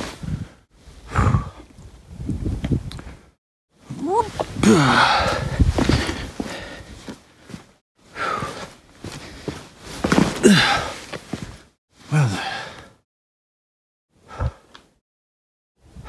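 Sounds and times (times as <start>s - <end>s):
man sighing heavily: 1.1s - 1.6s, 4.1s - 6.9s, 10.4s - 11.0s, 12.1s - 13.0s.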